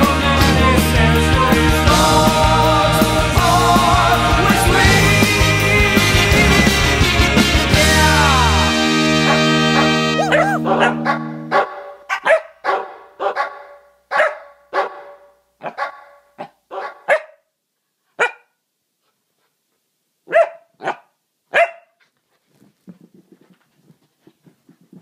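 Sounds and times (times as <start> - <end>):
puppy barking: 9.2 - 17.5, 18.2 - 18.6, 20.3 - 22.0.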